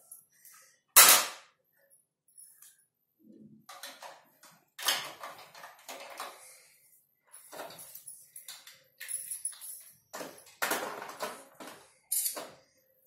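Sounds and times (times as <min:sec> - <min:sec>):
plastic toy vehicles clattering: 0:03.6 - 0:06.6, 0:07.4 - 0:12.6.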